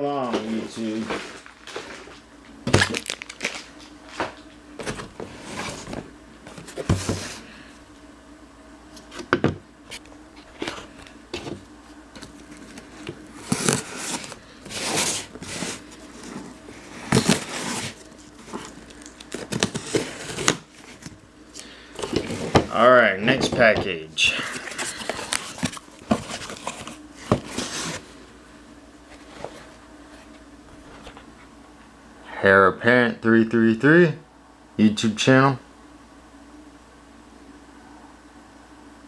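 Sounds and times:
cardboard crinkling and scraping: 0:00.2 - 0:07.5, 0:08.9 - 0:21.2, 0:22.0 - 0:23.8, 0:24.4 - 0:28.2, 0:29.1 - 0:31.5.

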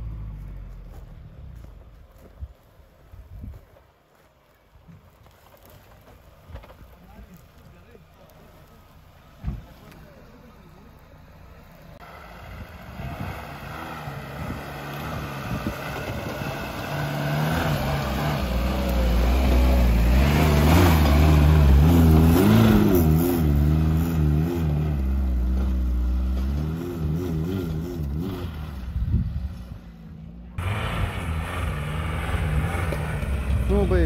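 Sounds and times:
car engine revving hard: 0:13.0 - 0:28.8, 0:30.6 - 0:34.0.

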